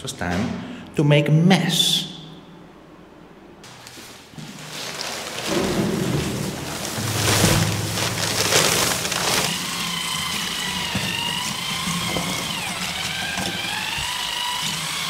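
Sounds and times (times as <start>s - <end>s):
powder pouring into water: 4.4s - 15.0s
electric drill mixer whining: 8.2s - 15.0s.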